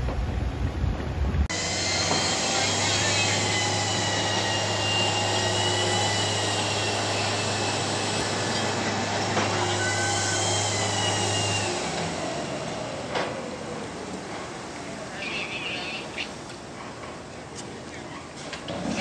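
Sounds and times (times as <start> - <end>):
crane mechanical hum: 0.0 - 19.0
high-pitched squeals: 1.5 - 12.3.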